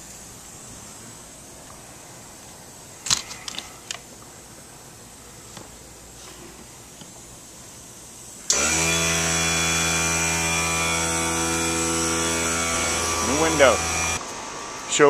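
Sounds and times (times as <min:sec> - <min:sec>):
motor humming with high whine: 0:08.5 - 0:15.0.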